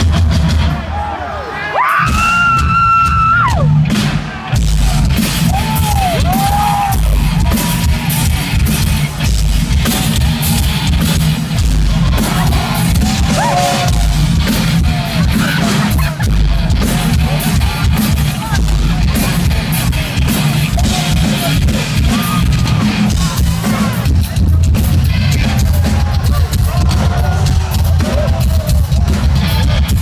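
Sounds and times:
heavy metal band playing live: 0:00.0 - 0:30.0
shouted vocals: 0:05.4 - 0:08.2, 0:12.0 - 0:14.2.

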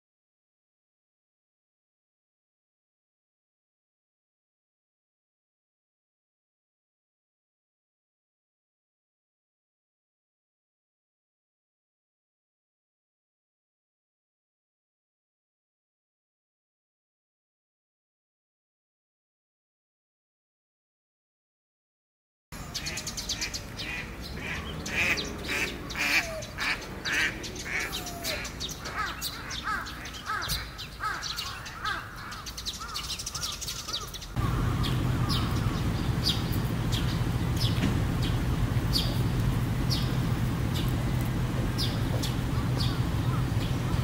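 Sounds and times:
birds calling: 0:22.6 - 0:44.0
steady low hum: 0:34.3 - 0:44.0.

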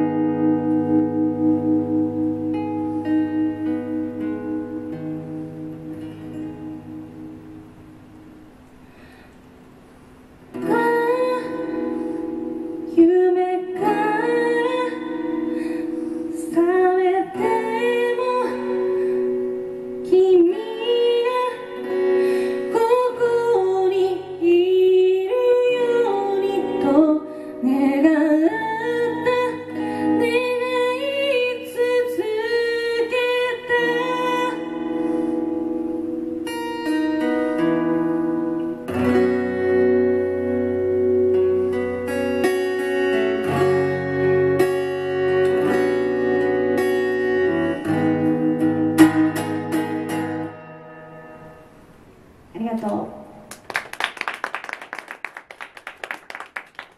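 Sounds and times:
acoustic guitar: 0:00.0 - 0:56.9
woman singing: 0:10.6 - 0:12.0, 0:12.6 - 0:15.5, 0:16.3 - 0:34.9.

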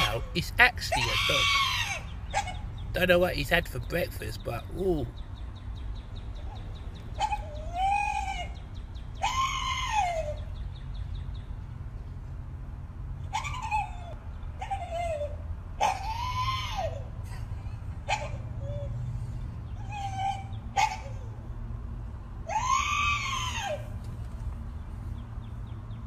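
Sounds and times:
dog crying: 0:00.0 - 0:02.8, 0:07.1 - 0:08.6, 0:09.2 - 0:10.5, 0:13.3 - 0:17.2, 0:18.1 - 0:19.0, 0:19.8 - 0:21.4, 0:22.4 - 0:23.8.

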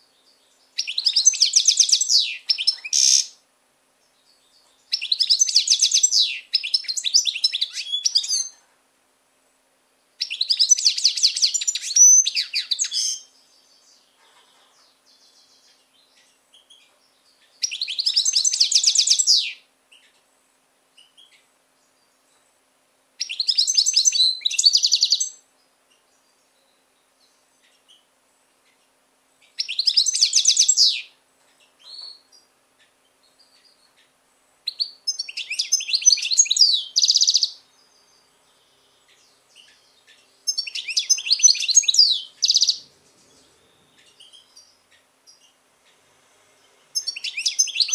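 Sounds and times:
goldfinch singing: 0:00.7 - 0:03.4, 0:04.4 - 0:08.6, 0:10.2 - 0:20.2, 0:23.2 - 0:26.3, 0:29.4 - 0:32.5, 0:34.7 - 0:46.0, 0:46.9 - 0:47.9.

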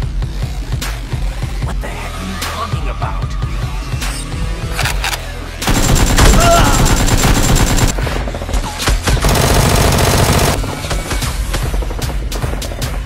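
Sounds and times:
automatic gunfire bursts: 0:05.7 - 0:08.0, 0:09.2 - 0:10.9.

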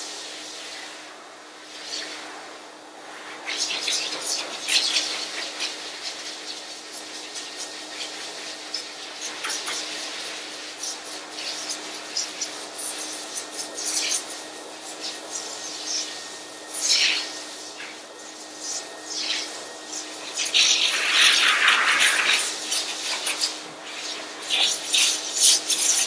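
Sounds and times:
air hissing through fur: 0:00.0 - 0:26.0
pet dryer motor hum: 0:00.0 - 0:26.0.

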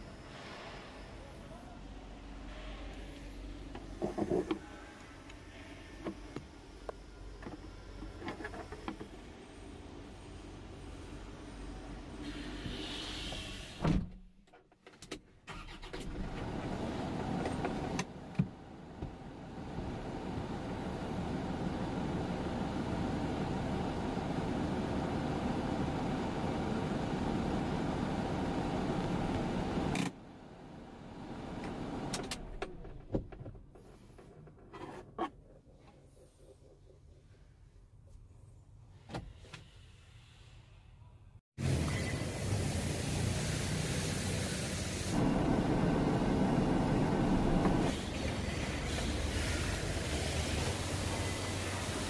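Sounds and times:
diesel engine running: 0:41.6 - 0:52.0.

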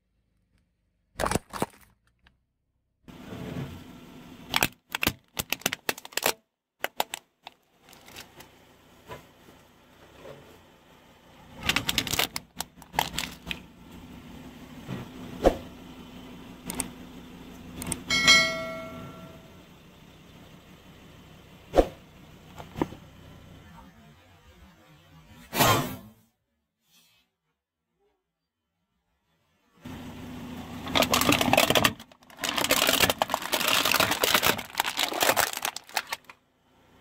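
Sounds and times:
hard plastic cracking under tyre: 0:01.1 - 0:02.3, 0:04.5 - 0:08.5, 0:11.5 - 0:13.6, 0:30.8 - 0:36.4.

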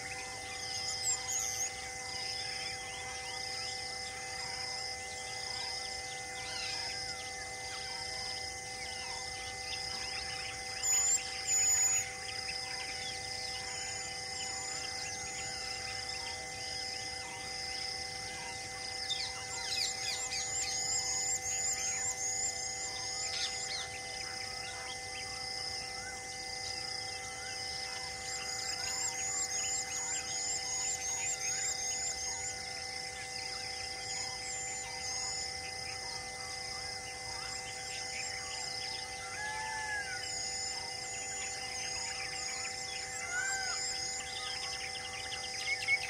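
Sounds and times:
steady hum: 0:00.0 - 0:46.0
birds chirping: 0:26.7 - 0:46.0.

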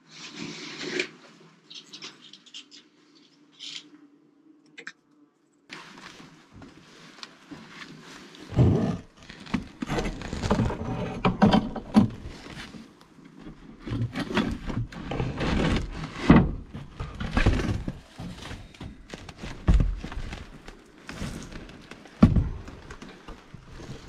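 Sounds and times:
knocks and thumps: 0:22.2 - 0:22.8.

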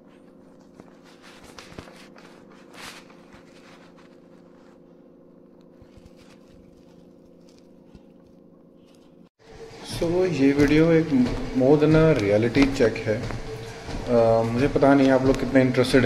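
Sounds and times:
steady low hum: 0:00.0 - 0:16.0
shoe scuffs on tiled floor: 0:00.1 - 0:05.0, 0:09.6 - 0:15.8.

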